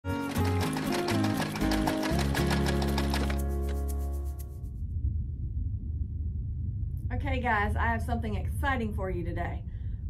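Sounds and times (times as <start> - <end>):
fast ticks: 0.3 - 4.5.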